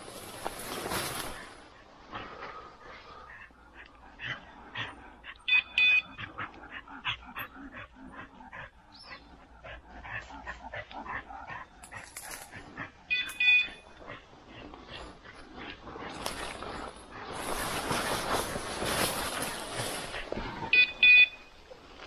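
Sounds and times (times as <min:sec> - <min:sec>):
rustling and crackling: 0:00.0 - 0:04.5, 0:10.0 - 0:22.0.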